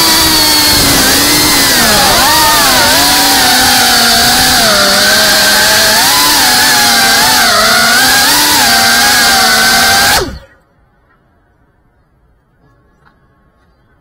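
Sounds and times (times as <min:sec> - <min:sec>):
drone motors whining: 0:00.0 - 0:10.6.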